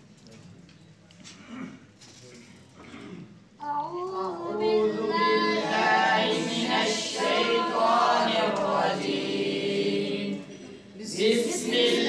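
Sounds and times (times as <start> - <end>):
boys choir singing: 4.4 - 12.0.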